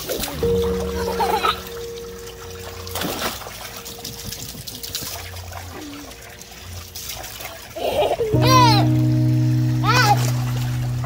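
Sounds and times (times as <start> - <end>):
water sloshing in paddling pool: 0.0 - 8.3
water splash: 0.0 - 11.0.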